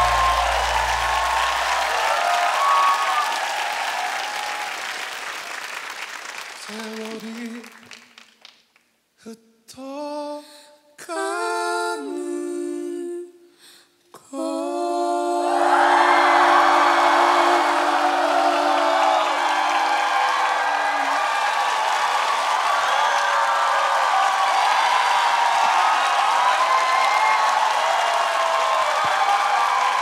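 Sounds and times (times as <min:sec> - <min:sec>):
crowd cheering: 0:00.0 - 0:06.6, 0:15.4 - 0:30.0
applause: 0:00.0 - 0:09.0, 0:17.9 - 0:30.0
man and girl singing: 0:09.2 - 0:13.4.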